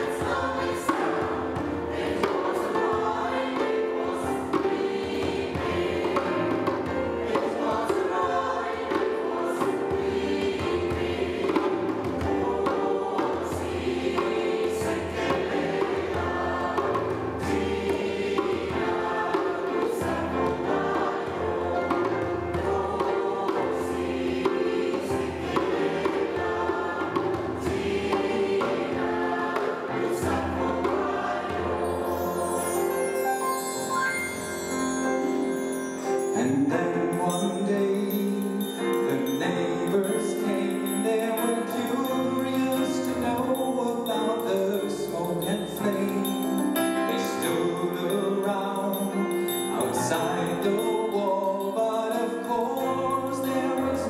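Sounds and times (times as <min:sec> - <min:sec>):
hand drum beats: 0:00.0 - 0:31.8
choir singing in harmony: 0:00.0 - 0:54.0
keyboard: 0:00.0 - 0:54.0.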